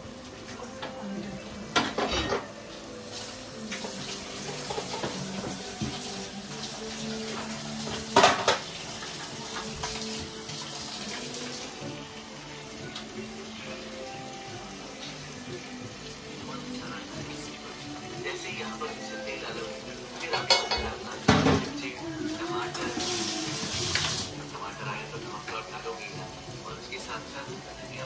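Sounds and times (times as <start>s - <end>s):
utensils and pans clattering: 0.7s - 6.3s, 7.0s - 11.4s, 19.4s - 24.3s
steady hiss: 2.6s - 20.2s.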